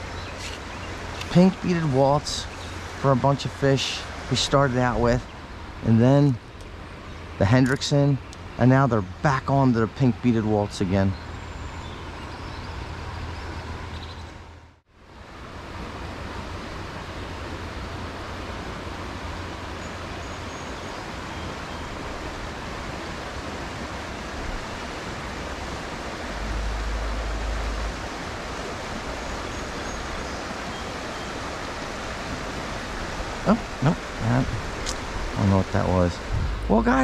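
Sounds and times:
creek water rushing: 0.0s - 37.0s
low rumble: 26.2s - 29.1s, 35.7s - 37.0s.

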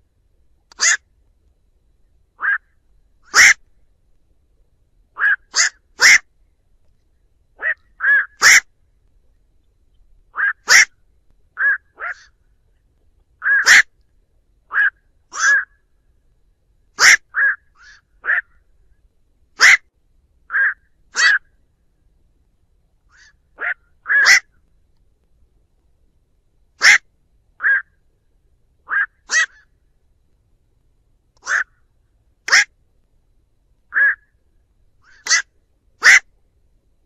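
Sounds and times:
night heron calls: 0.7s - 1.1s, 2.4s - 3.6s, 5.1s - 6.3s, 7.6s - 8.7s, 10.3s - 11.0s, 11.6s - 12.4s, 13.4s - 14.0s, 14.7s - 15.8s, 17.0s - 18.7s, 19.6s - 19.9s, 20.5s - 21.6s, 23.1s - 24.6s, 26.8s - 28.0s, 28.8s - 29.8s, 31.4s - 32.8s, 33.9s - 34.4s, 35.0s - 36.3s.

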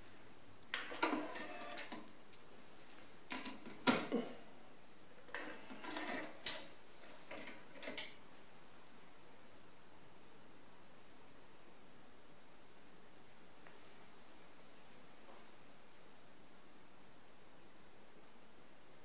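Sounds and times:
cassette deck motor whirring: 0.8s - 2.0s.

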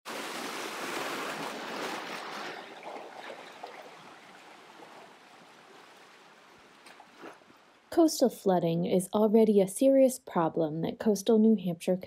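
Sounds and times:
rushing water-like noise: 0.1s - 7.8s.

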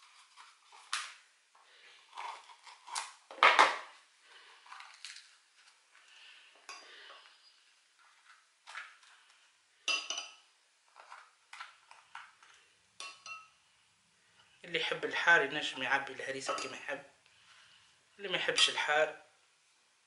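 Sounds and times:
spoons clinking against ceramic: 9.9s - 10.4s, 13.0s - 13.6s, 16.5s - 16.8s.

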